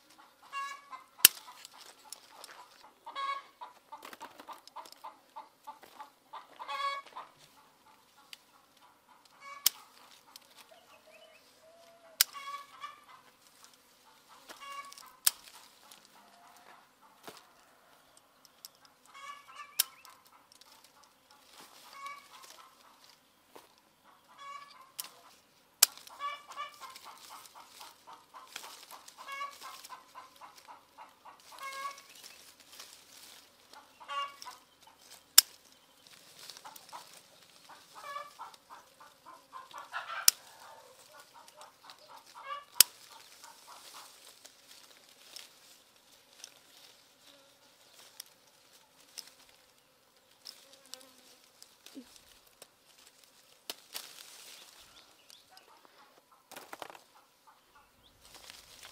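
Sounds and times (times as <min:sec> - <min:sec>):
chickens clucking: 0:00.0 - 0:58.9
scissors snipping stems: 0:01.2 - 0:02.7, 0:09.6 - 0:10.6, 0:14.8 - 0:16.0, 0:25.8 - 0:30.8, 0:39.7 - 0:44.1, 0:50.4 - 0:54.6.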